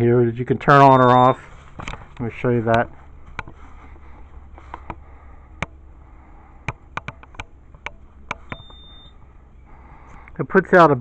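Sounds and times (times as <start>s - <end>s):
short high beep: 0.9s - 1.5s, 8.5s - 9.2s
sharp irregular clicks: 6.6s - 8.8s.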